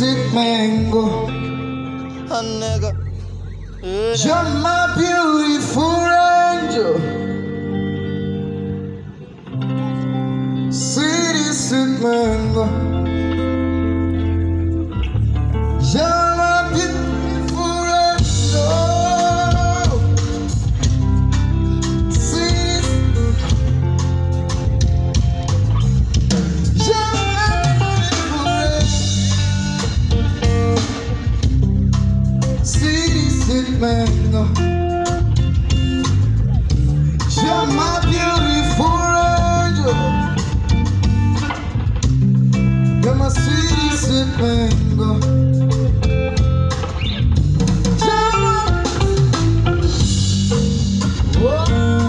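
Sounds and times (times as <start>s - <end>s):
bass guitar: 0.0s - 52.0s
guitar: 0.0s - 52.0s
live band playing: 0.0s - 52.0s
drum kit: 16.1s - 52.0s.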